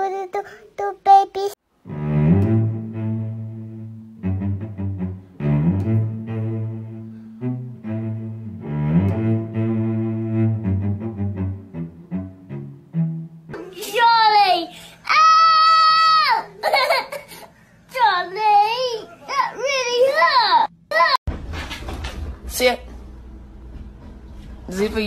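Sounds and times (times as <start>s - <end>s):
low bowed strings: 1.8s - 13.7s.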